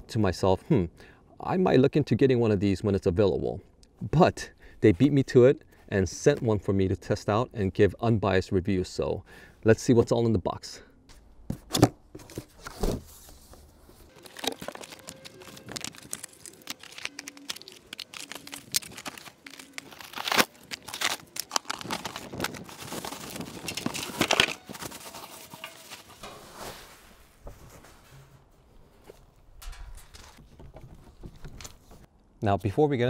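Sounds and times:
cardboard rustling and scraping: 0:11.5 - 0:29.4
plastic wrapping crinkling: 0:14.1 - 0:26.3.

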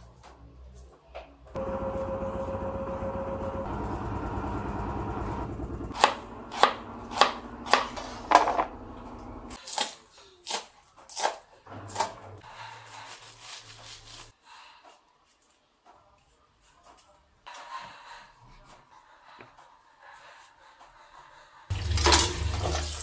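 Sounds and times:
washing machine humming: 0:01.6 - 0:09.6, 0:11.7 - 0:12.4, 0:21.7 - 0:23.0
knife chopping on plastic board: 0:05.9 - 0:08.8.

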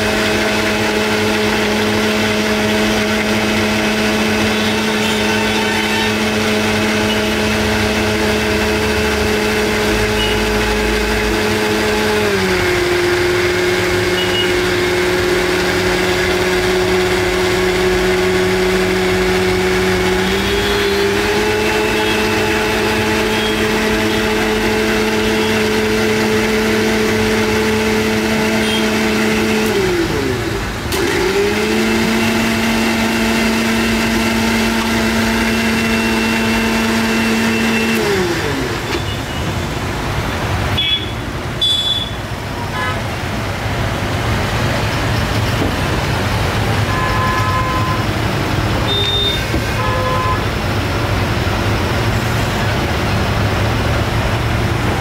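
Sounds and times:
electric motor humming: 0:00.0 - 0:39.0.

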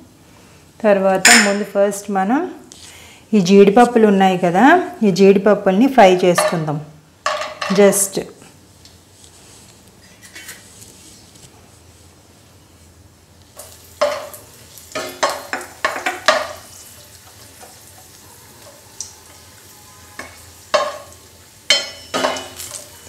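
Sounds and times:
nuts sizzling in oil: 0:13.4 - 0:23.0.

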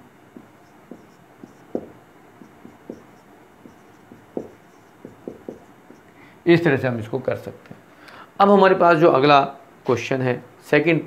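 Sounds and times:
marker pen writing on whiteboard: 0:00.3 - 0:06.2.

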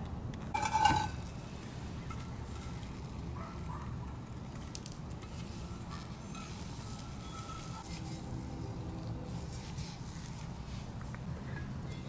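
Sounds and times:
cast iron skillets clanking: 0:00.5 - 0:01.3.

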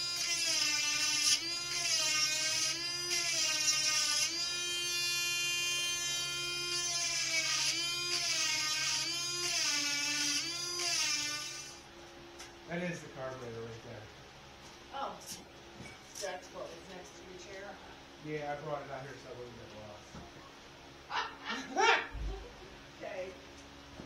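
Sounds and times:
electric grinder whine: 0:00.0 - 0:11.9.

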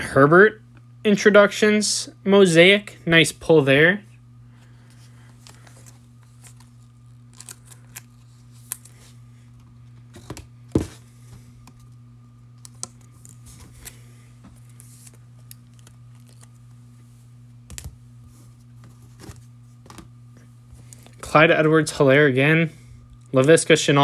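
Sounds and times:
steady low hum: 0:00.0 - 0:24.0
trading cards clicking and snapping: 0:12.5 - 0:14.0.

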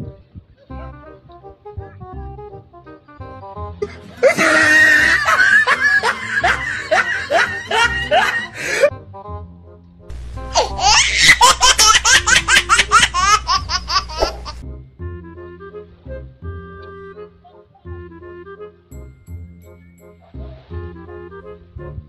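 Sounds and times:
faint background music: 0:00.0 - 0:22.0
hearty laughter: 0:03.8 - 0:08.9, 0:10.6 - 0:14.6.

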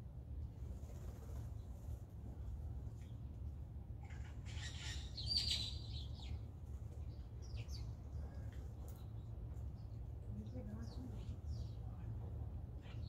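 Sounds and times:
low background hum: 0:00.0 - 0:13.0
blue jay calls: 0:04.1 - 0:06.3.

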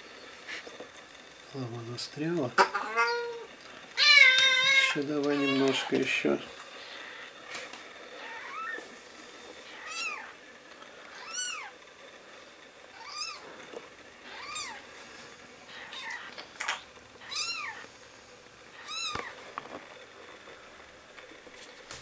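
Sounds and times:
kitten mewing: 0:15.7 - 0:16.3, 0:18.8 - 0:19.2.

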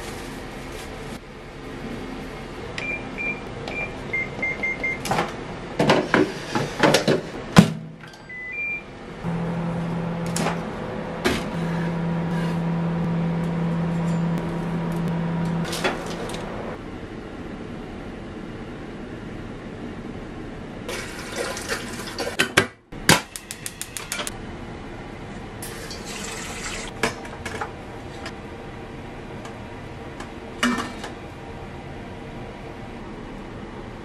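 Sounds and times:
microwave oven humming: 0:00.0 - 0:05.9, 0:07.3 - 0:34.0
microwave control panel beeps: 0:02.8 - 0:05.1, 0:08.0 - 0:08.9.

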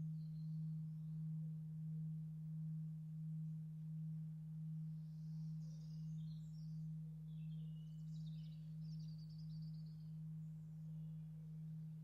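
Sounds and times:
bird chirps: 0:05.0 - 0:10.6.

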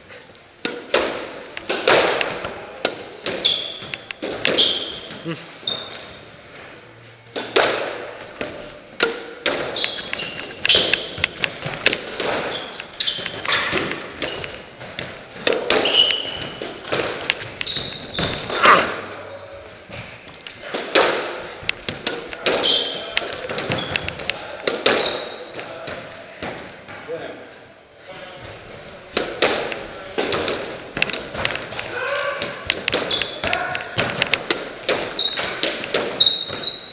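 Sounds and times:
squash ball hits: 0:00.6 - 0:05.0, 0:07.4 - 0:19.3, 0:19.9 - 0:25.4, 0:29.1 - 0:36.9
shoes squeaking on wooden floor: 0:03.1 - 0:07.5, 0:09.5 - 0:25.6, 0:29.6 - 0:36.9.

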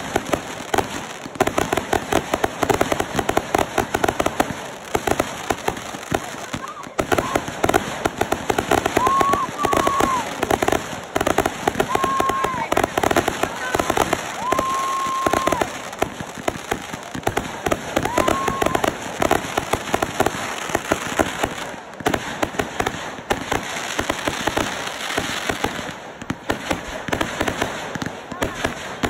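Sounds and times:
fireworks popping and crackling: 0:00.0 - 0:29.0
high firework whistles: 0:08.9 - 0:10.4, 0:14.1 - 0:15.9.

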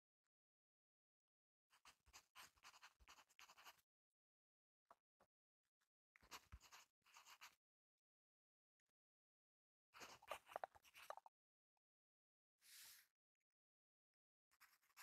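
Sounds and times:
pencil scratching on paper: 0:01.8 - 0:03.8, 0:06.2 - 0:07.6, 0:14.5 - 0:15.0.

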